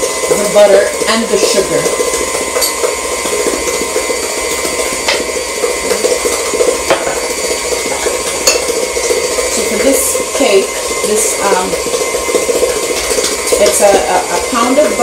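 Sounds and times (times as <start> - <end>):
electric stand mixer running: 0.0 - 15.0.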